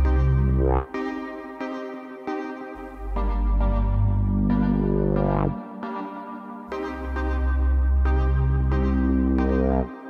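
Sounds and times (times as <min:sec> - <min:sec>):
deep bass: 0:00.0 - 0:00.9, 0:02.8 - 0:05.6, 0:06.7 - 0:09.9
synthesizer chords: 0:00.0 - 0:10.0.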